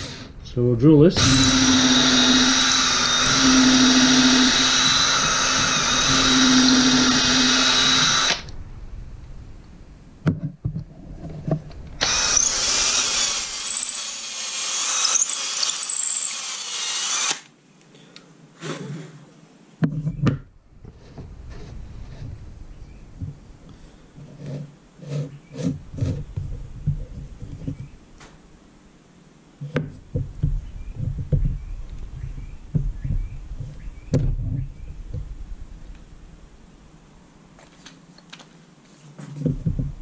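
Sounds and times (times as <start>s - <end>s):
cordless drill boring into wood: 1.2s - 8.5s, 12.0s - 17.5s.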